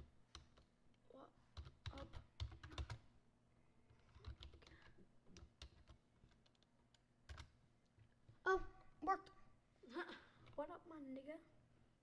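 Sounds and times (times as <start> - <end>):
keyboard typing: 1.6 - 3.1, 4.0 - 7.6.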